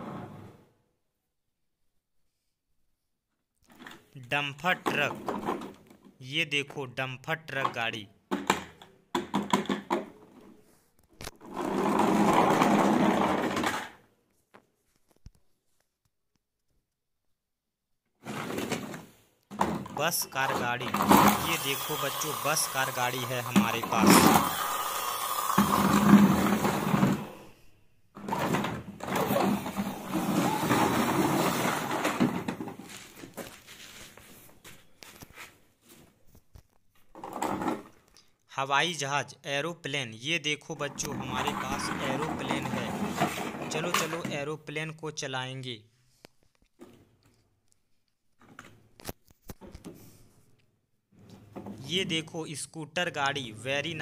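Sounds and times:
plastic toy truck rattling: 11.2 - 14.1, 22.8 - 27.4, 28.2 - 34.0, 41.0 - 44.4.

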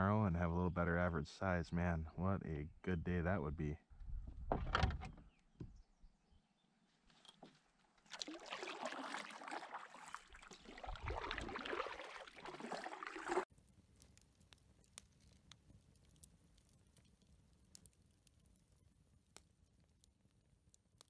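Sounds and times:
kayak paddle splashing in water: 8.0 - 13.5
campfire crackles and pops: 13.4 - 21.0.

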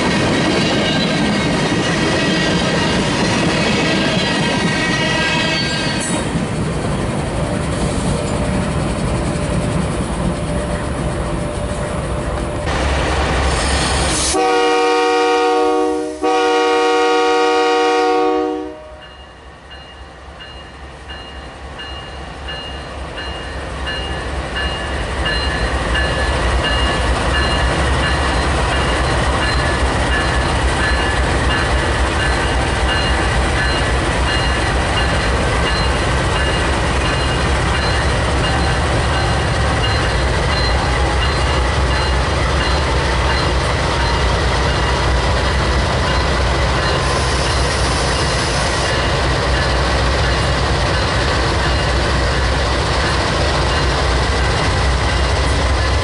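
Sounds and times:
locomotive horn blasts: 3.8 - 5.9, 14.3 - 19.0.

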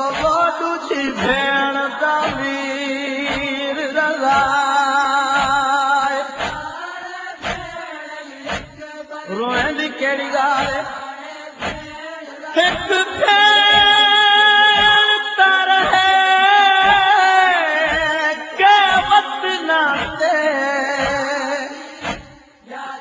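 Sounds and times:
man singing lamentation chant: 0.0 - 23.0
regular thumping beat: 2.2 - 2.5, 3.3 - 3.6, 4.3 - 4.6, 5.4 - 5.7, 6.4 - 6.8, 7.4 - 7.8, 8.5 - 8.8, 9.5 - 9.8, 10.6 - 10.9, 11.6 - 12.0, 14.8 - 15.1, 18.9 - 19.2, 20.0 - 20.2, 21.0 - 21.3, 22.0 - 22.4.

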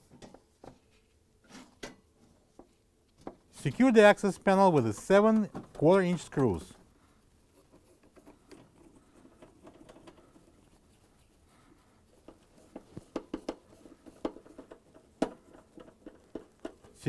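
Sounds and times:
nut driver ticking and scraping: 7.6 - 10.7, 12.2 - 17.0.

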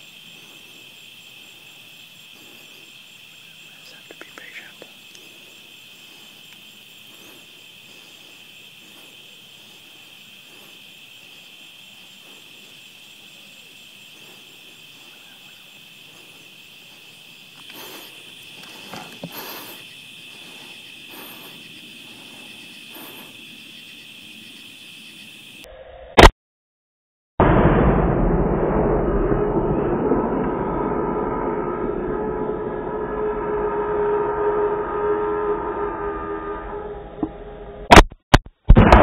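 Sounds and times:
night insects chorus: 0.0 - 25.7.

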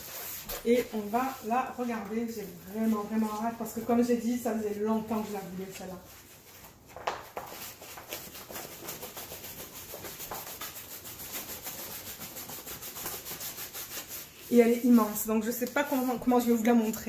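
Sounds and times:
plastic-covered canvas rubbing and scraping: 7.6 - 16.9.

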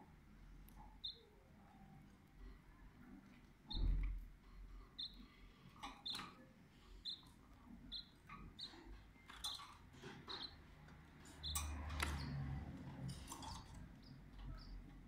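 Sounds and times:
canaries chirping: 0.6 - 2.4, 3.0 - 15.0
birds rustling in cage: 7.9 - 15.0.

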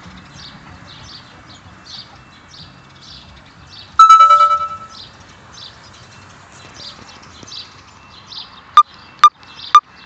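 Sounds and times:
level crossing warning alarm pulsing: 4.0 - 5.0.

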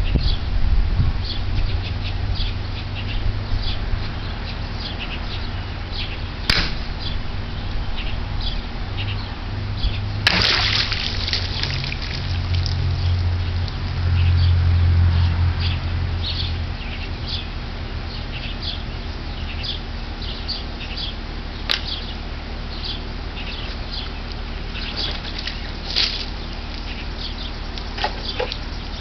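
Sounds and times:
birds chirping: 1.2 - 29.0
sharp click: 6.5 - 6.9
sword striking plastic water jug: 6.5 - 6.9, 10.3 - 10.6
water splashing: 10.2 - 13.9.

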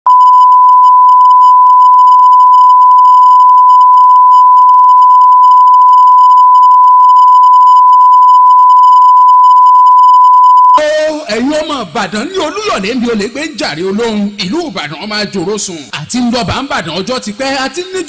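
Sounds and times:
steady electronic test tone: 0.1 - 10.8.

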